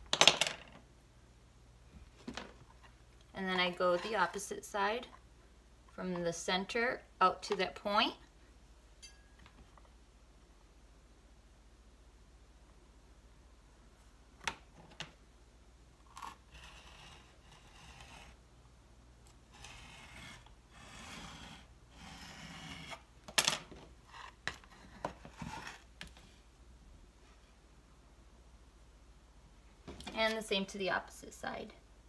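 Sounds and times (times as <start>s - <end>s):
ruler sliding scrape: 16.2s - 18.4s, 19.5s - 23.0s.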